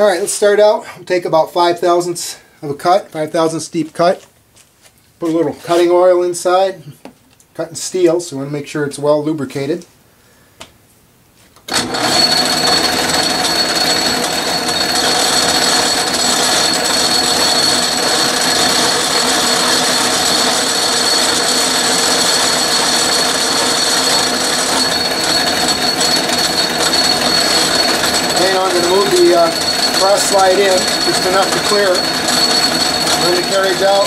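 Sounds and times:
metal lathe whining: 11.7s - 34.0s.

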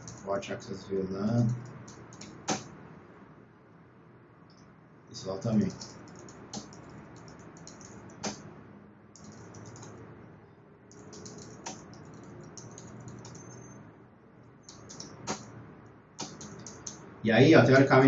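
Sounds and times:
typing on computer keyboard: 0.0s - 0.3s, 1.5s - 2.6s, 5.6s - 8.4s, 9.2s - 10.0s, 10.9s - 13.8s, 14.6s - 15.5s, 16.2s - 17.0s.

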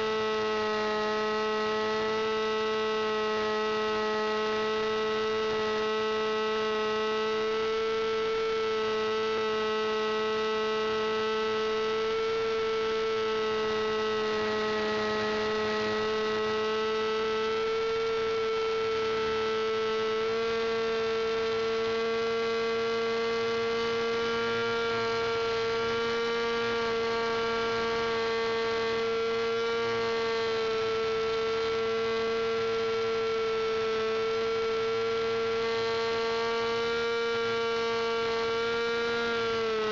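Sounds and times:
model plane engine buzzing: 0.0s - 39.9s.

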